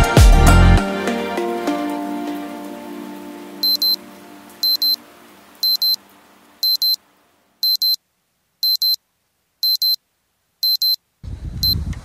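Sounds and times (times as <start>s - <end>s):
background music: 0.0s - 5.4s
digital alarm clock beeping: 3.6s - 4.0s, 4.6s - 5.0s, 5.6s - 6.0s, 6.6s - 7.0s, 7.6s - 8.0s, 8.6s - 9.0s, 9.6s - 10.0s, 10.6s - 11.0s.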